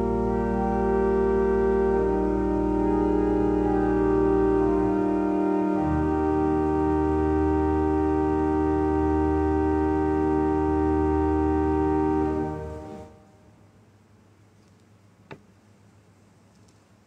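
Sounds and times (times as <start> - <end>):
organ sustained chord: 0.0 - 13.6.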